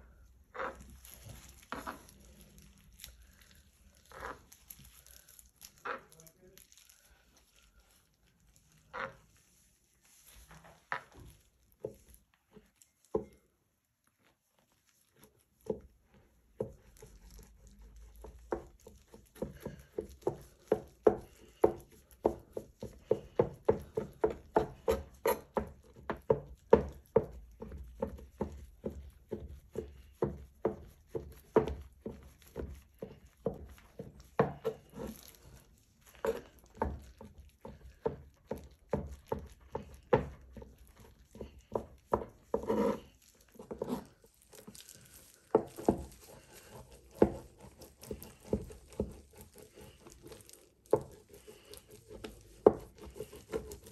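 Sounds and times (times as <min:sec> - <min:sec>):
knife chopping on plastic board: 0:16.6 - 0:35.4, 0:36.2 - 0:53.9.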